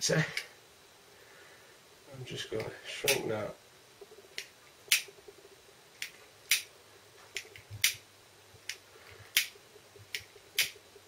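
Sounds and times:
lighter clicking: 4.4s - 5.1s, 6.0s - 6.7s, 8.7s - 9.5s.

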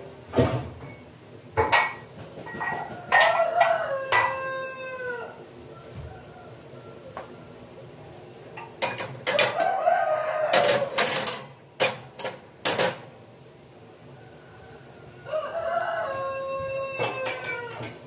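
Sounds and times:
rooster crowing: 2.6s - 7.6s, 9.3s - 11.3s, 14.1s - 18.0s.

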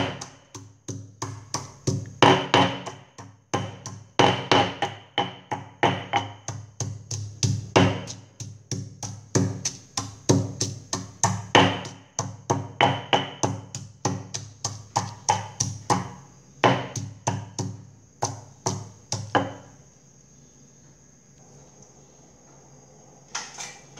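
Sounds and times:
stone pestle pounding in mortar: 0.0s - 19.6s.

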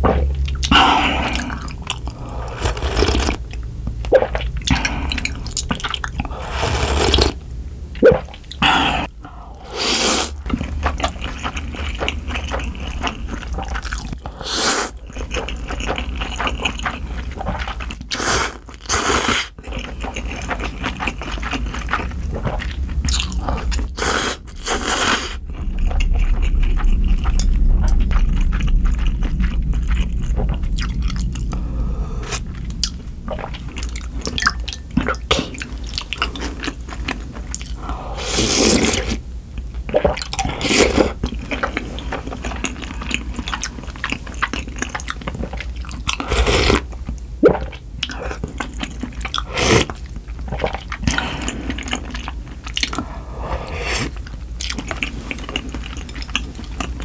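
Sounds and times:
wet chewing: 0.0s - 7.4s, 8.0s - 57.0s
slurping noodles: 0.7s - 3.4s, 4.1s - 7.4s, 8.1s - 36.7s, 37.6s - 39.2s, 46.1s - 46.9s, 49.3s - 52.1s, 52.8s - 54.2s.

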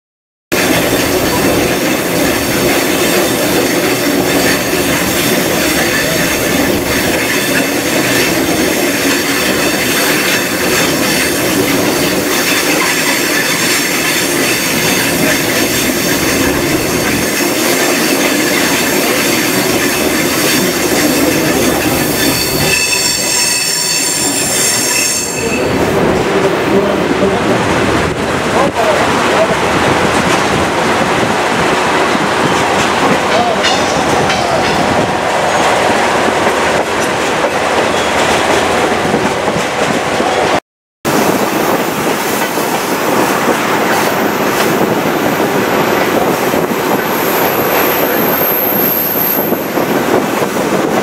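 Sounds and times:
train wheels rumbling on rail: 0.5s - 51.0s
high wheel squeal: 0.6s - 25.8s.

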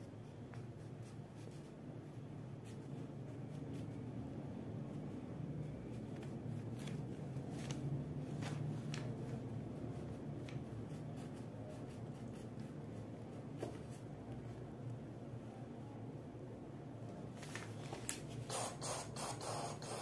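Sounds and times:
crayon scratching on paper: 18.4s - 20.0s.

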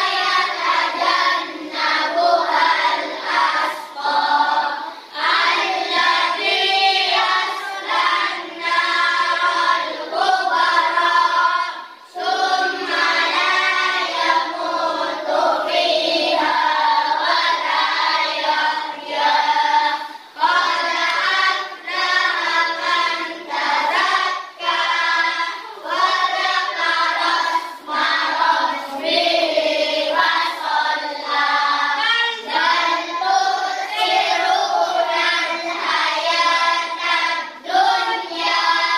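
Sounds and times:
children singing in unison: 0.0s - 38.9s.

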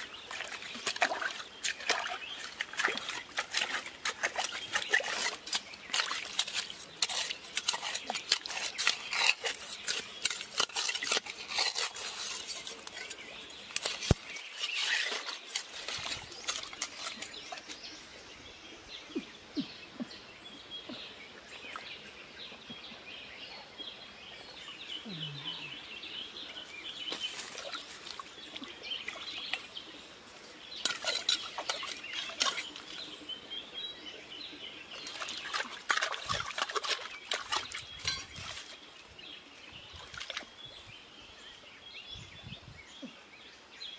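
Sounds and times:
hands squelching in mud: 0.0s - 17.8s, 35.0s - 38.8s.

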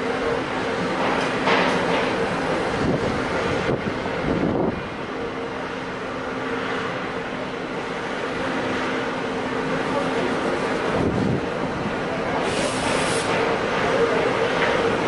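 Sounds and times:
wind noise on microphone: 2.7s - 5.0s, 10.9s - 12.0s.

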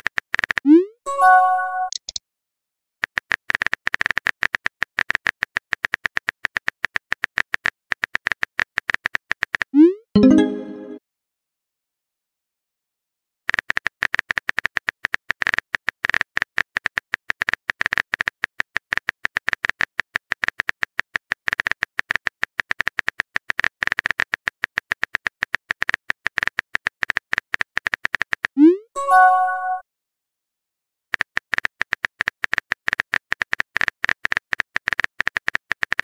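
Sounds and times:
keyboard typing clicks: 1.1s - 2.2s.

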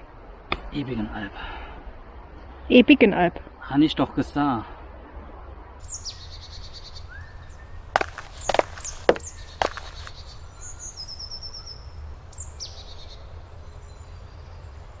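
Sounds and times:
birds singing: 5.8s - 15.0s
sharp knocks: 8.0s - 10.1s.

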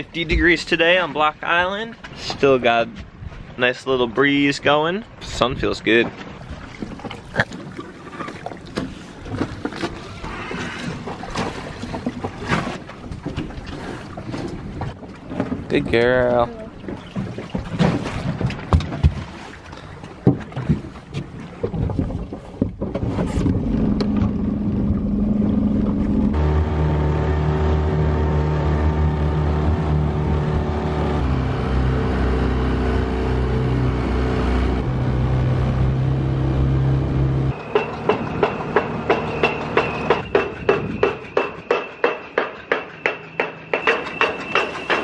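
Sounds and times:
outboard motor running: 6.3s - 40.3s
high ringing tone: 37.5s - 45.0s
pilings being hammered: 37.7s - 45.0s.

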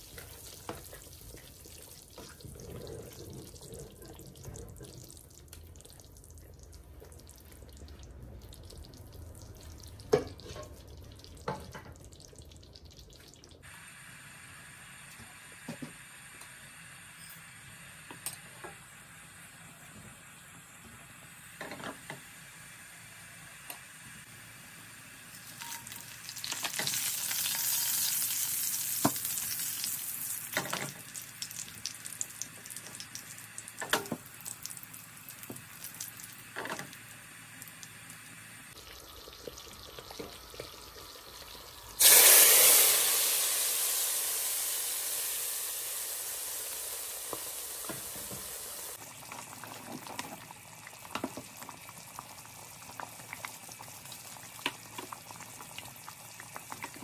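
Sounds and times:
spices sizzling in hot oil: 0.0s - 2.5s, 7.2s - 57.0s
hot oil sizzling on curry: 0.0s - 57.0s.

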